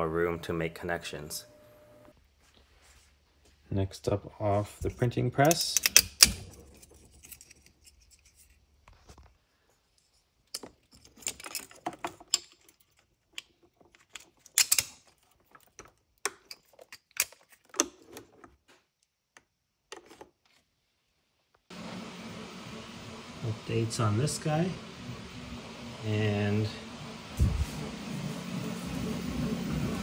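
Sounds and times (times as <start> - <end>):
plastic and brass parts clicking: 5.4 - 8.4, 10.5 - 18.6.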